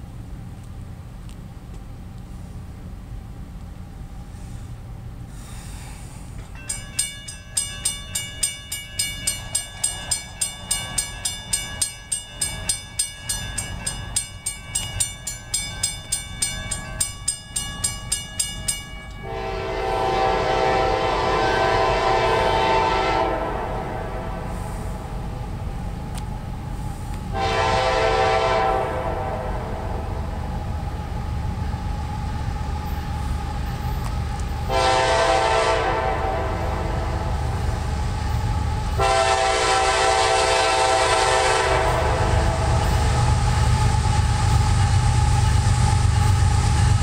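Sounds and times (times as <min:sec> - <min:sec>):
crossing warning bell ringing: 0:06.4 - 0:23.3, 0:32.8 - 0:47.0
locomotive air horn blast: 0:19.2 - 0:25.1, 0:27.3 - 0:30.1, 0:34.7 - 0:37.4, 0:39.0 - 0:43.1.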